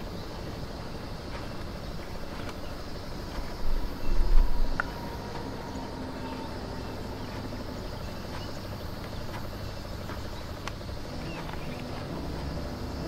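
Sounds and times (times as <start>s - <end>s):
low background rumble: 0.0s - 13.0s.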